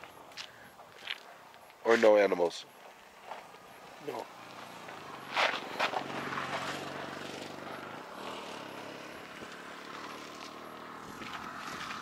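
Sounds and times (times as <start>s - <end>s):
engine droning hum: 2.7s - 12.0s.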